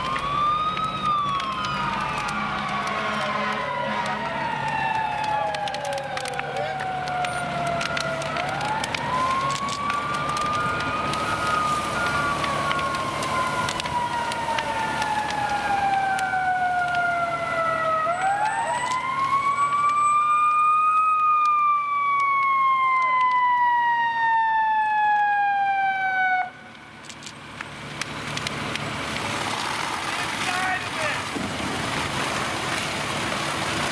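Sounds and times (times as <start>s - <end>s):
mechanical fire siren winding: 0.0s - 23.7s.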